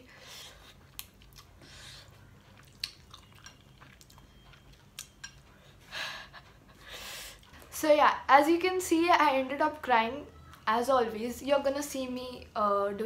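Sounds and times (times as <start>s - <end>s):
chewing noodles: 0.3s - 6.8s.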